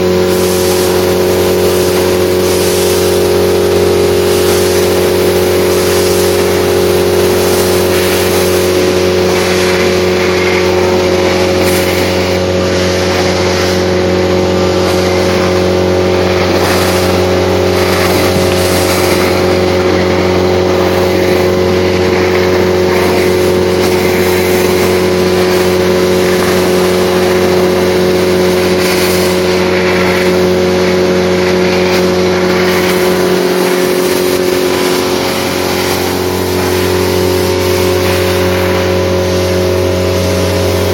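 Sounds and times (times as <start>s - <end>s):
industrial vacuum running: 0.0s - 40.9s
hiss of air suction: 0.2s - 3.4s, 4.2s - 21.5s.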